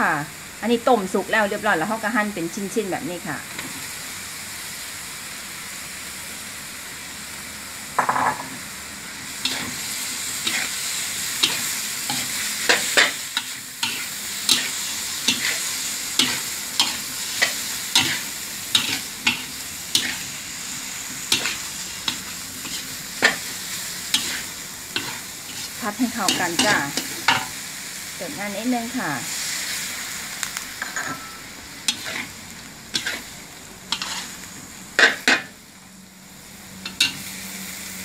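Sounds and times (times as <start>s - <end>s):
food sizzling in wok: 0.0s - 38.0s
spatula scraping and clacking wok: 9.3s - 27.6s, 30.4s - 35.6s, 36.8s - 37.4s.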